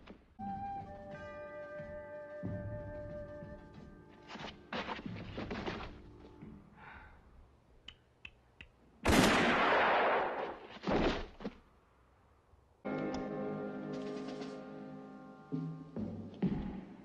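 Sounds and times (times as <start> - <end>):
revolver gunshot: 9.1 - 10.6.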